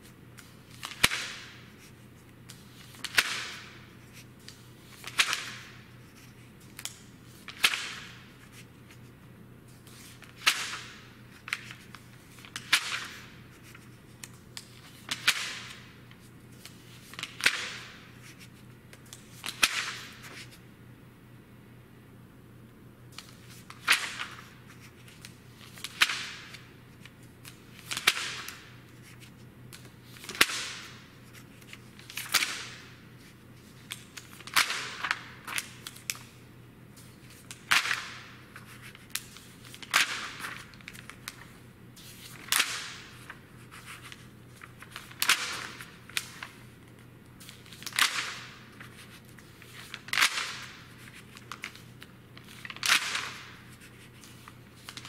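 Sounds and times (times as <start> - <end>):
magazine pages turning: 9.7 - 20.6, 23.1 - 36.4, 37.0 - 55.0.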